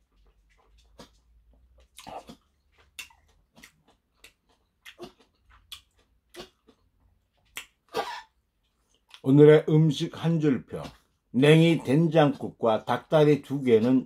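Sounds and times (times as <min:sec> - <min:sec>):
lip smacks and tongue clicks: 0:00.0 - 0:07.9, 0:08.6 - 0:09.3.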